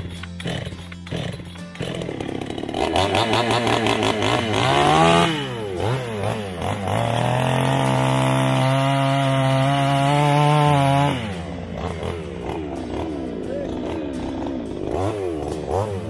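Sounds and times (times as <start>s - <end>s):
chainsaw revving and cutting log: 0.0s - 16.0s.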